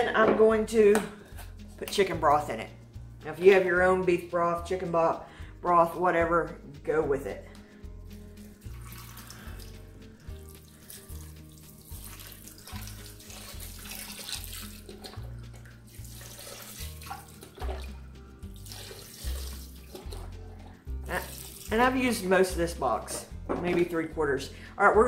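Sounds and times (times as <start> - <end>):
background music: 0.0 - 25.0
broth pouring into metal pot: 8.5 - 21.8.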